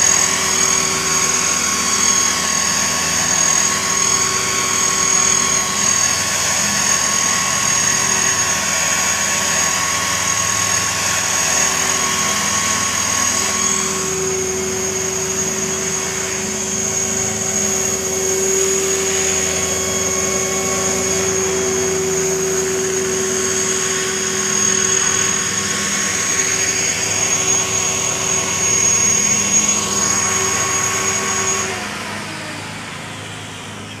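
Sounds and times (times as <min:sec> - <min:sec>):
rc helicopter whine: 0:00.0 - 0:34.0.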